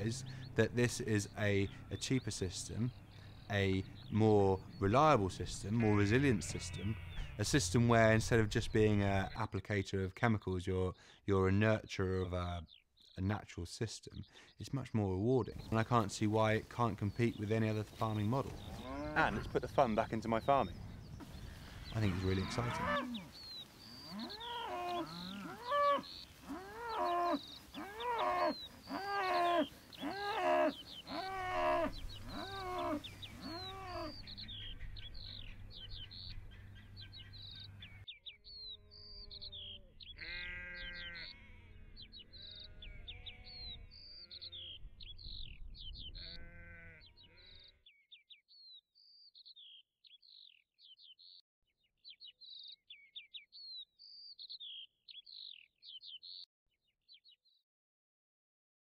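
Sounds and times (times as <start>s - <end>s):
livestock calling: 4.8s - 7.8s, 18.2s - 35.6s, 36.5s - 44.8s, 46.1s - 47.8s.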